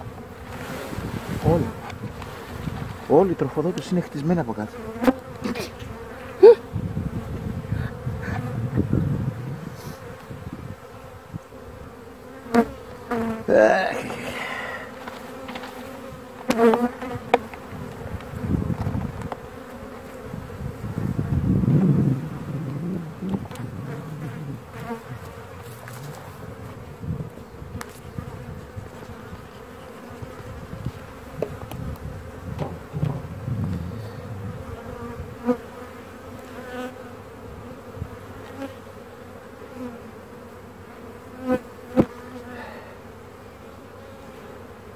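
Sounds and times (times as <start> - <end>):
honeybees buzzing: 0.0 - 44.9
wooden hive frames knocking: 15.0 - 19.5, 30.9 - 33.8.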